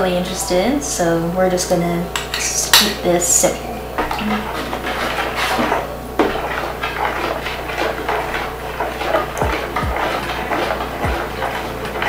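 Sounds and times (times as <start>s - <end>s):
spoon scraping a mixing bowl: 4.0s - 12.0s.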